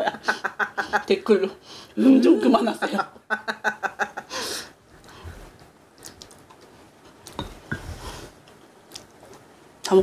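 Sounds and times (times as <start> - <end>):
woman laughing: 0.0 - 1.3, 2.2 - 4.5
quiet eating sounds: 4.8 - 10.0.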